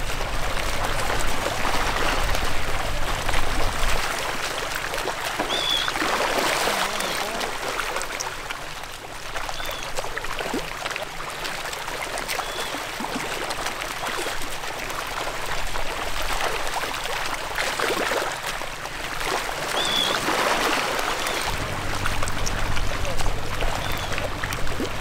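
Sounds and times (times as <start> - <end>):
water splashing and trickling: 0.0 - 25.0
high bird calls: 5.5 - 6.0, 19.8 - 20.2, 23.7 - 24.4.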